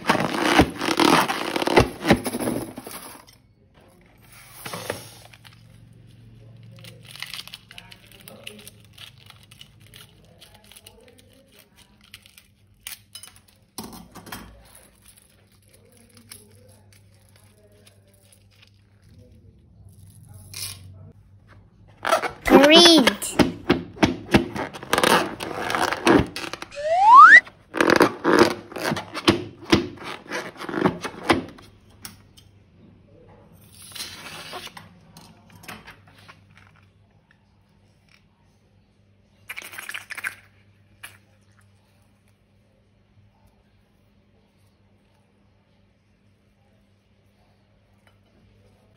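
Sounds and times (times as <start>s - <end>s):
short rising squeal: 26.7s - 27.4s.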